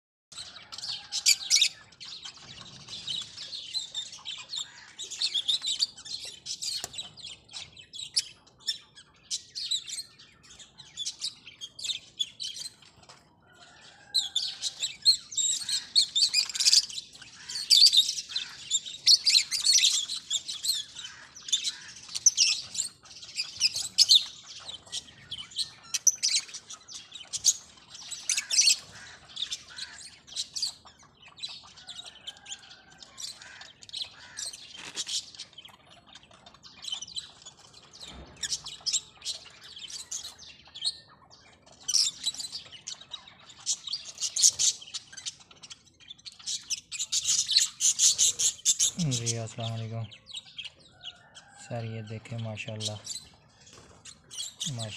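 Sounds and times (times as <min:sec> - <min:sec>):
lovebirds chirping: 0:00.3 - 0:54.9.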